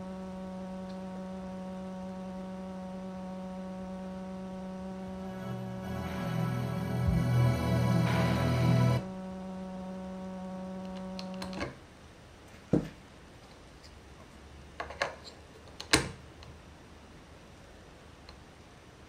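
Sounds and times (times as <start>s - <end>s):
electrical buzz through speaker: 0.0s - 11.8s
music from speaker: 5.1s - 9.0s.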